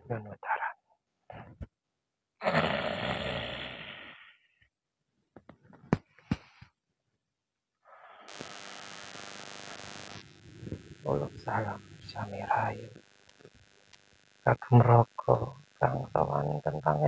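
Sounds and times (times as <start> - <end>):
steady hiss: 8.3 - 17.0.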